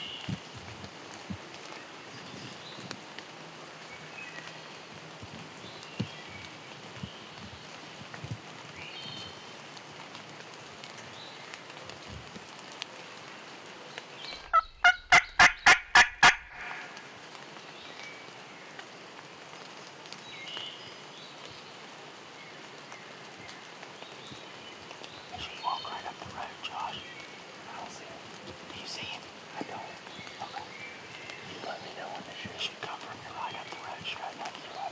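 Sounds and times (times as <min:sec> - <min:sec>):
steady rain: 0:00.0 - 0:34.9
turkey gobbling: 0:14.4 - 0:17.0.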